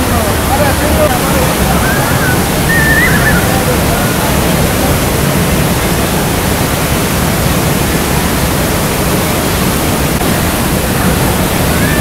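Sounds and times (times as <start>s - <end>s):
waterfall rushing: 0.0s - 12.0s.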